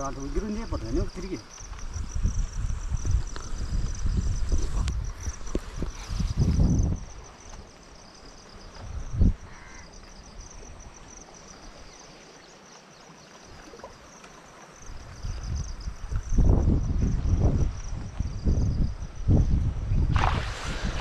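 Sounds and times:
insects chirping: 0:00.0 - 0:21.0
floodwater flowing: 0:20.1 - 0:21.0.

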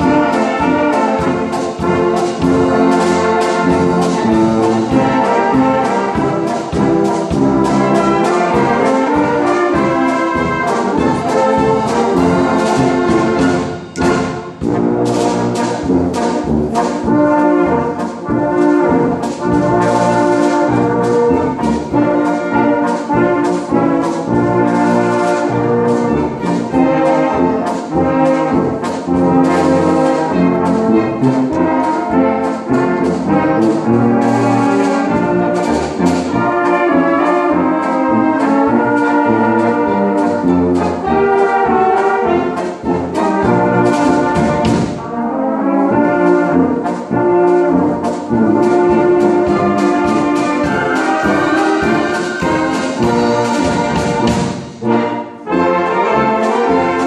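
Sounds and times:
steady drum beat: 0:00.0 - 0:45.4, 0:46.0 - 0:55.0
brass wind band playing: 0:00.0 - 0:57.0.

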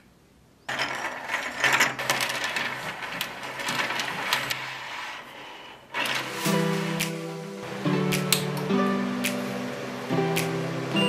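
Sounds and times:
rapid mechanical clicking and rattling: 0:00.7 - 0:04.8.

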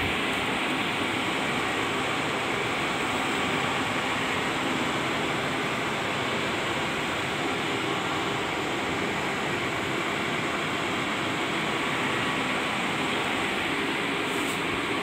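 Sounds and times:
cooling fans whooshing: 0:00.0 - 0:15.0.

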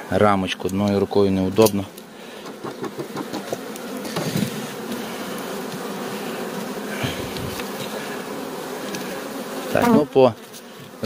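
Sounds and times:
bees buzzing: 0:00.0 - 0:11.0.

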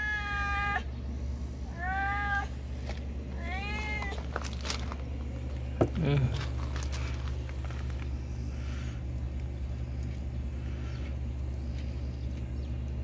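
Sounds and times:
cat meowing: 0:00.0 - 0:00.9, 0:01.7 - 0:02.5, 0:03.4 - 0:04.3.

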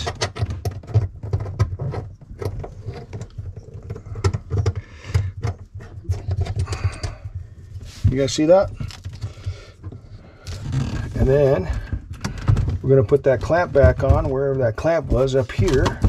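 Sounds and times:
clicks and rattles of plumbing fittings: 0:00.0 - 0:16.0.

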